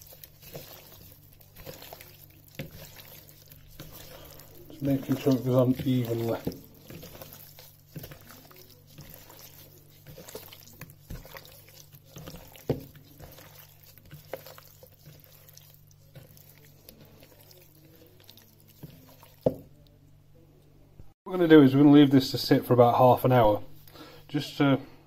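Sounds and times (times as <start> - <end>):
wet squelching of meat: 0.0 - 19.9.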